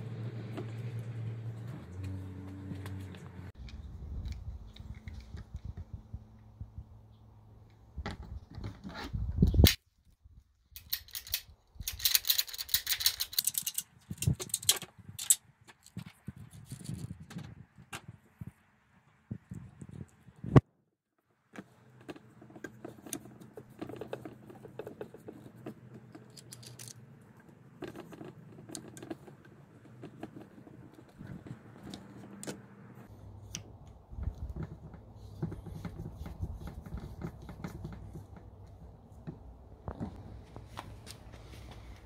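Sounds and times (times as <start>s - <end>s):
plastic fittings clicking and rattling: 10.8s - 18.1s, 22.0s - 27.0s.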